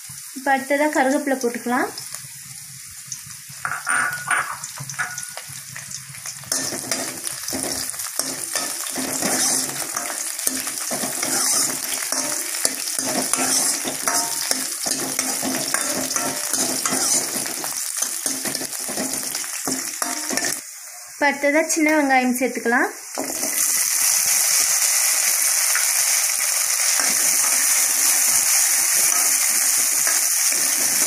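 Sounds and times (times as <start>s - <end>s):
leaves sizzling in hot oil: 0.0s - 31.0s
ladle stirring: 6.5s - 20.6s.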